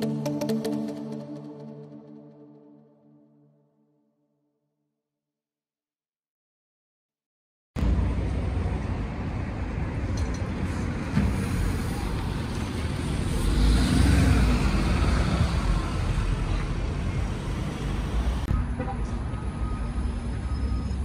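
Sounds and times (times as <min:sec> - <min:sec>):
bus engine rumble: 0:07.8 - 0:21.0
street traffic: 0:07.8 - 0:21.0.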